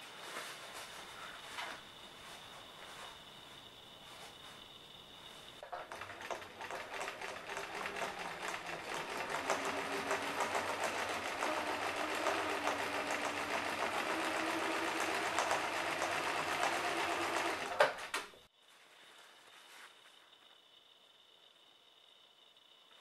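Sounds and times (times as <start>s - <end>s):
sewing machine stitching: 5.6s - 18.1s.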